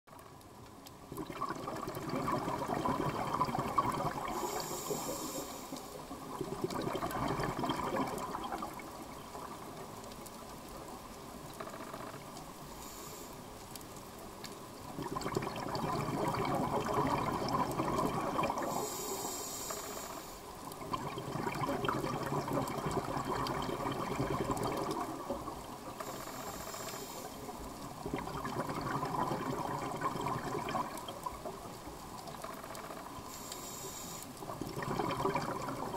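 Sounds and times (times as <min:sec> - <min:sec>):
exhaled bubbles underwater: 0:01.1 - 0:10.0, 0:14.8 - 0:19.4, 0:20.0 - 0:33.4, 0:34.4 - 0:35.9
regulator hiss on inhale: 0:04.2 - 0:06.2, 0:12.6 - 0:13.7, 0:18.5 - 0:20.6, 0:25.9 - 0:27.7, 0:32.8 - 0:34.5.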